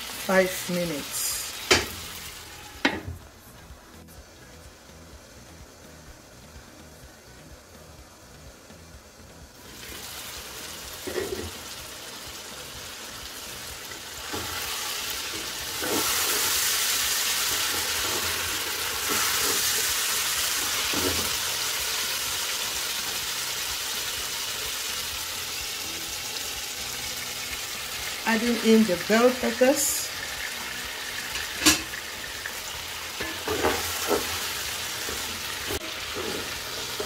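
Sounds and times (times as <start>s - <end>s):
vegetables sizzling in a pot: 0.0s - 37.0s.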